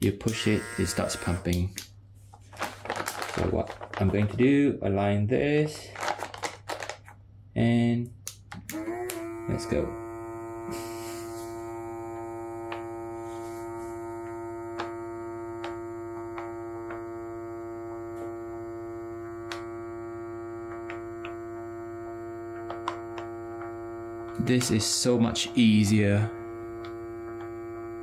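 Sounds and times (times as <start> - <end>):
electric vacuum pump humming: 0.0 - 2.0, 8.4 - 28.0.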